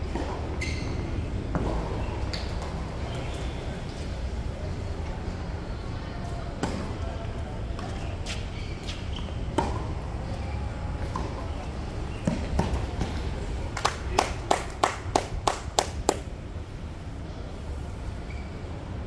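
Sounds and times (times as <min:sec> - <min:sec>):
tennis ball bouncing on court: 0:08.8 - 0:10.1, 0:12.1 - 0:13.2.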